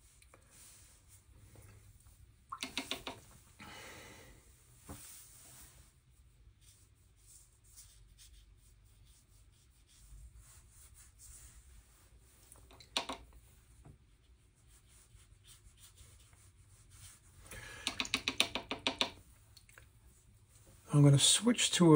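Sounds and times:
brush stroking on paper: 0:00.0 - 0:02.2, 0:04.9 - 0:12.6, 0:13.4 - 0:17.5, 0:19.2 - 0:21.9.

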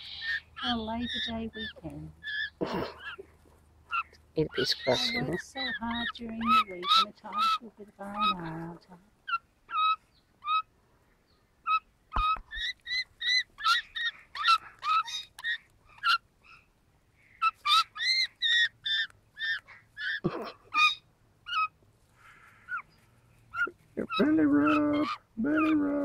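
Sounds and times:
magpie giving short calls: 0:00.0 - 0:03.2, 0:03.9 - 0:08.6, 0:17.3 - 0:22.9.

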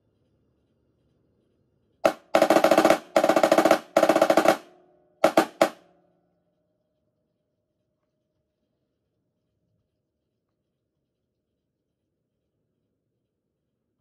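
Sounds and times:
snare drum rolls and hits: 0:02.1 - 0:05.8.

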